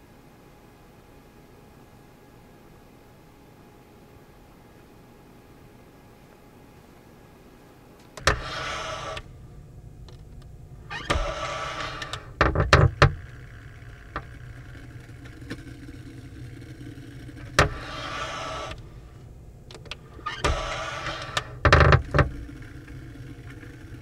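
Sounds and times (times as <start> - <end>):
vacuum cleaner running: 15.6 - 19.0.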